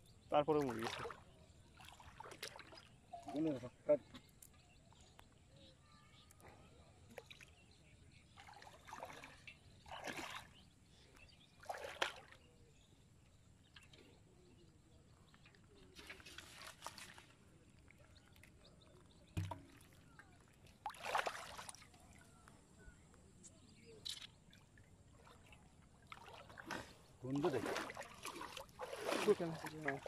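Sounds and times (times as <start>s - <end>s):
shallow water sloshing and splashing: 0.4s - 3.7s, 7.0s - 12.6s, 15.3s - 22.4s, 24.2s - 30.0s.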